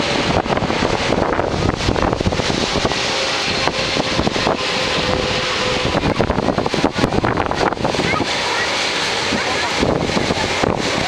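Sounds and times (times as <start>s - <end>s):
jet airliner rushing noise: 0.0s - 11.0s
wind buffeting microphone: 0.0s - 11.0s.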